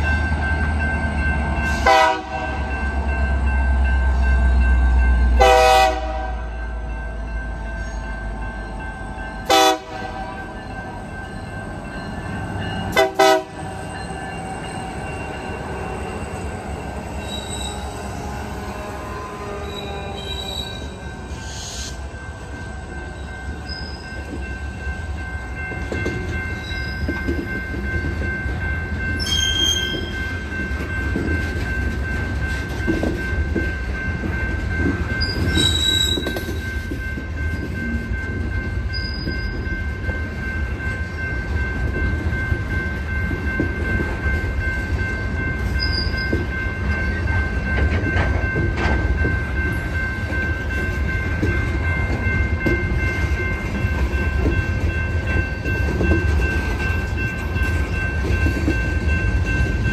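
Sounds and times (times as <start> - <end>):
train wheels rumbling on rails: 0.0 - 59.9
high wheel squeal: 17.1 - 18.0, 19.6 - 22.0, 29.2 - 30.3, 35.2 - 36.5
sharp wheel squeaks: 17.2 - 17.9, 19.6 - 22.0, 35.2 - 36.6.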